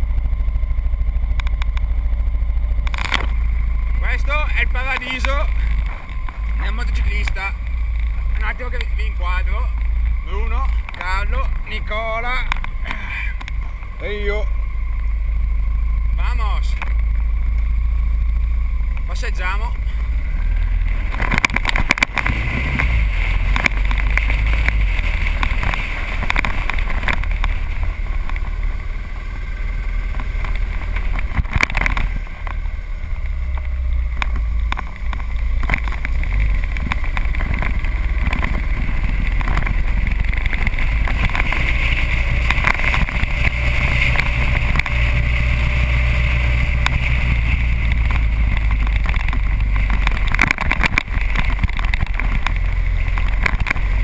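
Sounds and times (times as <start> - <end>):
motorcycle engine running: 0.0 - 54.0
wind rumble on microphone: 33.3 - 54.0.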